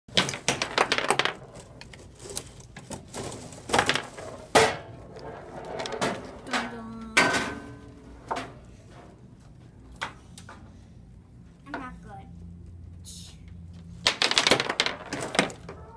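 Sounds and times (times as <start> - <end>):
ball knocking table walls: 0.1 - 1.8, 14.0 - 15.8
foosball players clattering: 0.1 - 9.1, 13.9 - 15.9.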